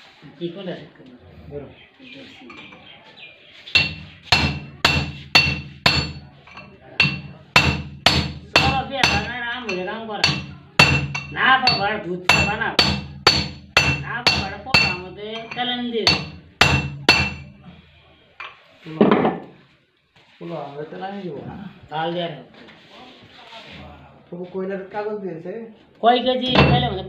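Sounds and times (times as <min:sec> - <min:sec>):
hammer striking steel shaft: 0:03.7 - 0:17.6.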